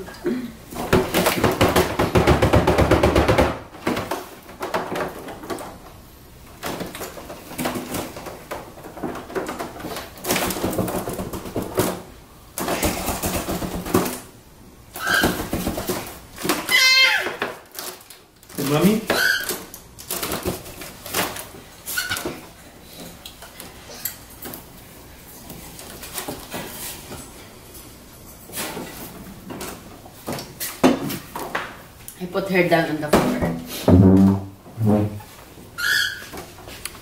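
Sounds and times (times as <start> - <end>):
foil balloon crinkling: 15.0 - 21.4
baby squealing: 16.7 - 17.4.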